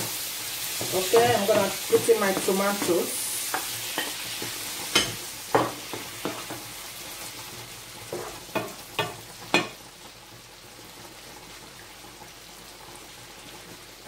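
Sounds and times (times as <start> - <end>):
seafood sizzling in a frying pan: 0.0 - 14.0
wooden spoon knocking against pan: 0.8 - 3.7.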